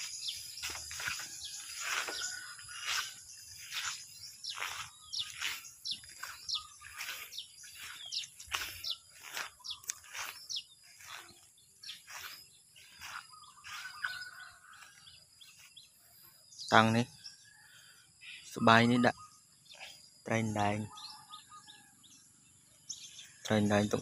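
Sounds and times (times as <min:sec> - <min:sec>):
footsteps through grass: 0:00.0 - 0:16.3
small birds chirping: 0:00.0 - 0:24.0.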